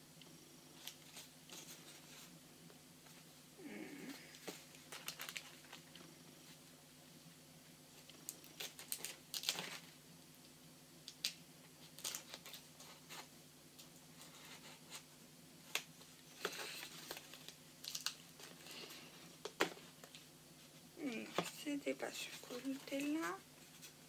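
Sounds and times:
packaging crinkling: 0:04.3 - 0:06.1, 0:08.2 - 0:10.0, 0:11.1 - 0:13.2, 0:15.7 - 0:20.2.

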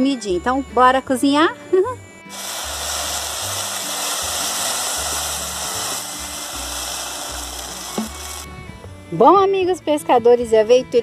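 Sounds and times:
rice sizzling in a pot: 0:02.3 - 0:08.5
water poured into hot pot: 0:02.3 - 0:08.5.

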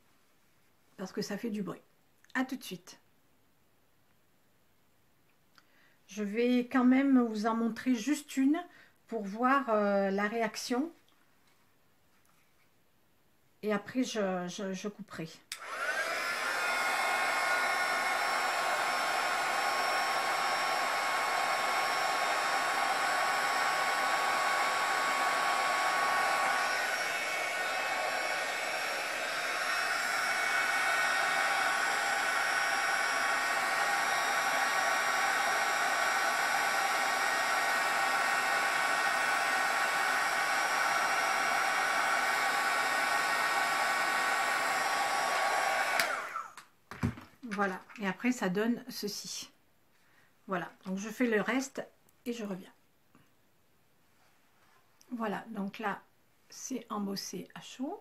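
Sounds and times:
heat gun blowing hot air: 0:15.5 - 0:46.6.

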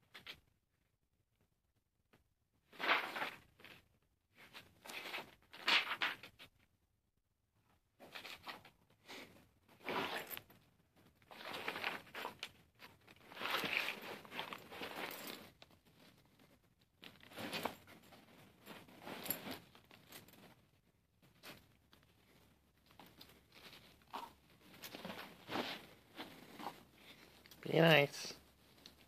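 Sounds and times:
bedding rustling and scuffling: 0:02.7 - 0:06.5, 0:08.0 - 0:29.0.

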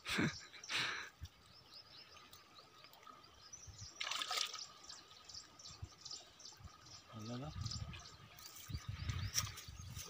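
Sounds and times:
water sloshing and trickling: 0:01.2 - 0:10.0
water splash: 0:03.9 - 0:04.8.

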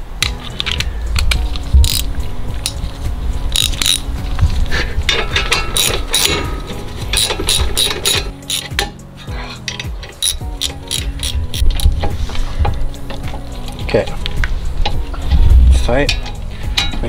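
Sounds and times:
socket ratchet clicking: 0:00.2 - 0:02.8, 0:03.5 - 0:04.1, 0:05.2 - 0:06.5, 0:07.1 - 0:09.0, 0:09.7 - 0:12.1.

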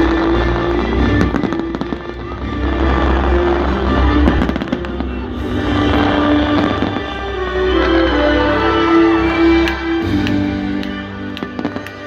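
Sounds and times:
fireworks cracking and popping: 0:00.0 - 0:07.9, 0:09.6 - 0:12.0
loud music playing: 0:00.0 - 0:12.0.

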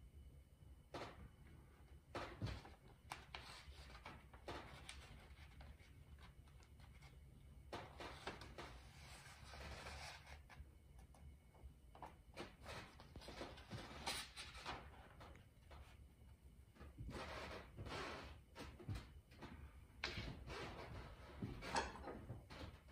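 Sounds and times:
soft paper crackles: 0:02.1 - 0:11.3
paper rustling and crinkling: 0:02.2 - 0:10.6.

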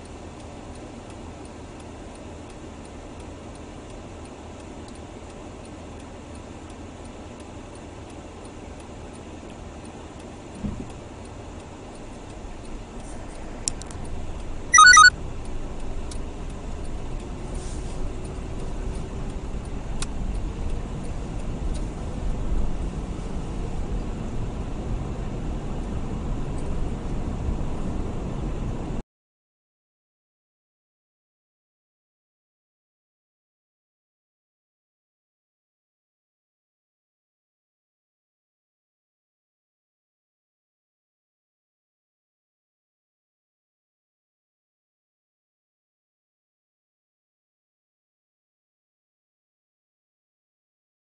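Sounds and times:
car engine and tyre rumble: 0:00.0 - 0:29.0
electronic chime: 0:14.8 - 0:15.1.

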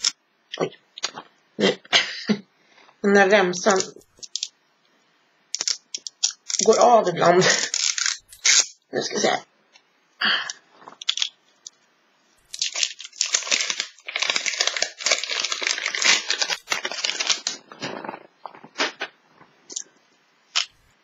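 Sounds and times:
plastic wrap crinkling and tearing: 0:05.6 - 0:08.8, 0:10.7 - 0:11.4, 0:12.5 - 0:19.2.

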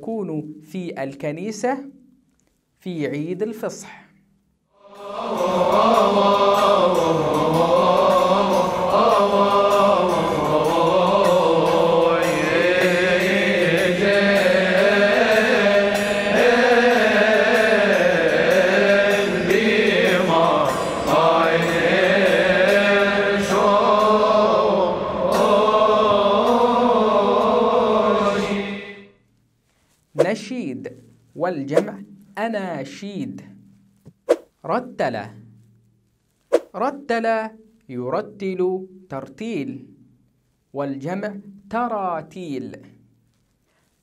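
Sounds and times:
choir chanting: 0:04.8 - 0:29.1.

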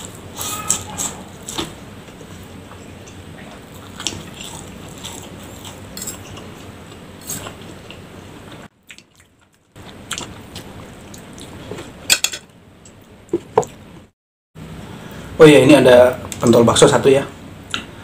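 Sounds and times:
person chewing and slurping noodles: 0:00.0 - 0:08.0.

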